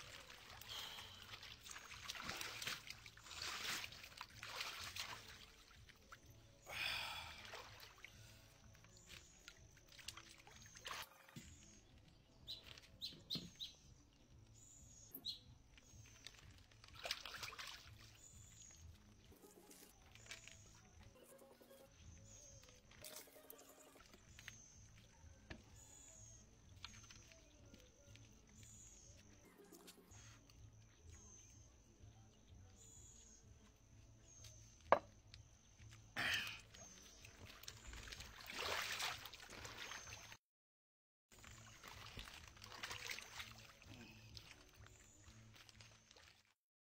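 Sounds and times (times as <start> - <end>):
water sloshing and splashing: 0.0 - 13.6, 15.6 - 21.2, 35.8 - 40.4, 41.3 - 46.6.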